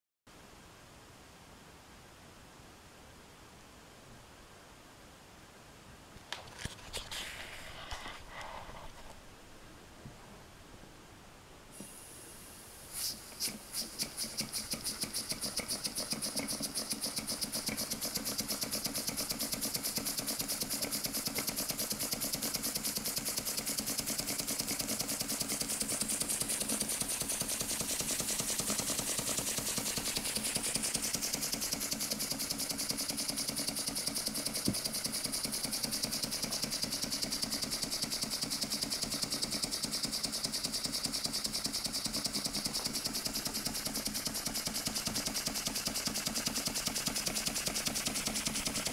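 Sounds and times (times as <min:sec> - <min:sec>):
steam engine exhaust puffs: 0:11.7 - 0:48.9.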